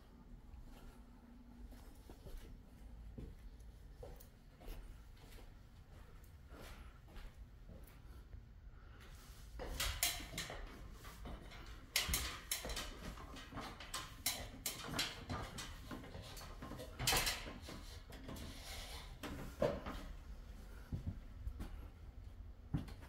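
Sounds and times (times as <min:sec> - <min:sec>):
footsteps on wooden floor: 0:20.8 - 0:21.8.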